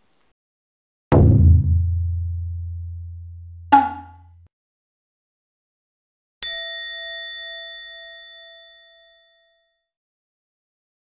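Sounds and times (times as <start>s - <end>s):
low tone: 1.1s - 4.3s
short sharp hit: 1.1s - 4.3s
bright bell-like ding: 3.8s - 4.2s.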